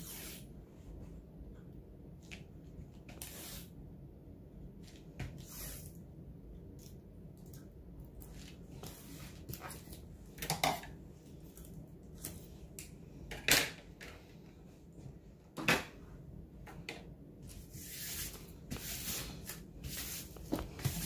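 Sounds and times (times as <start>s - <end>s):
hands brushing canvas: 17.5s - 21.0s
swishing rub: 17.6s - 21.0s.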